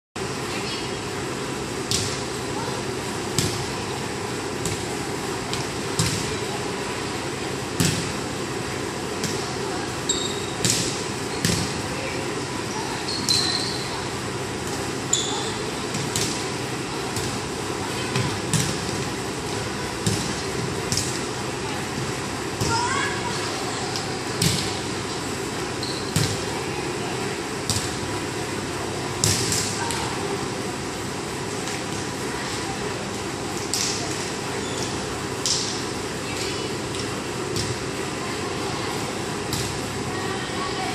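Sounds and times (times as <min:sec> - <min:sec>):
steady background hum: 0:00.2 - 0:40.9
steady hall noise: 0:00.2 - 0:40.9
volleyball hits echoing: 0:29.2 - 0:30.0.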